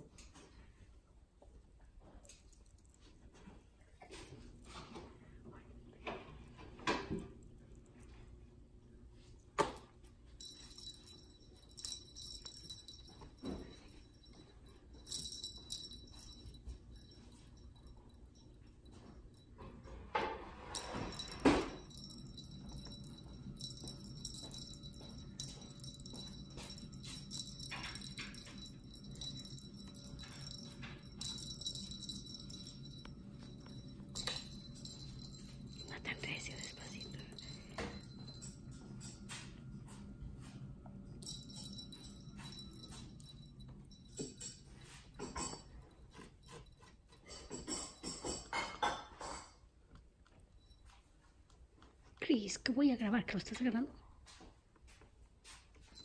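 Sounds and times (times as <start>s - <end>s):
low room hum: 0.0s - 56.0s
small jingle bell jingling: 9.6s - 49.5s, 50.2s - 51.3s, 54.3s - 56.0s
toy clicking and rattling: 10.4s - 17.3s, 20.8s - 39.2s, 41.2s - 48.5s.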